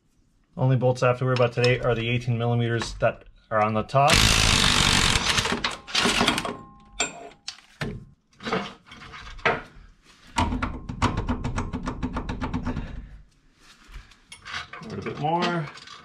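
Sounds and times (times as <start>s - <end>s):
ratchet wrench clicking: 4.1s - 5.5s.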